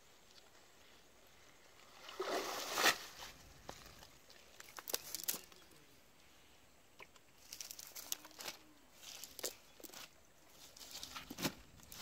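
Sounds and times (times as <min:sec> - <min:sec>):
cast net splashing water: 0:02.0 - 0:03.2.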